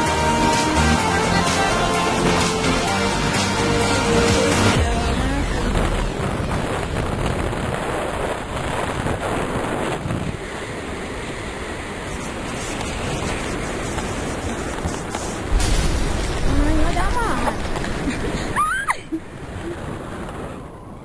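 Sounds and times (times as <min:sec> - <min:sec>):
wind rushing over microphone: 0:01.2 - 0:21.0.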